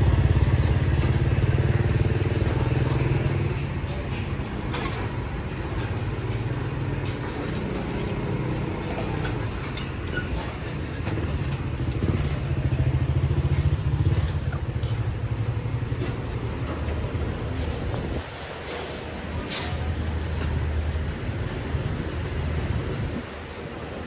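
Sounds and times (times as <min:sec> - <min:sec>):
low engine hum: 0:00.0 - 0:18.7
small motorcycle engine passing: 0:10.3 - 0:18.2.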